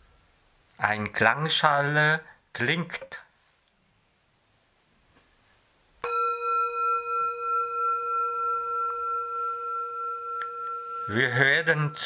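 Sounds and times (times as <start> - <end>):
singing bowl ringing: 6.0 - 12.0.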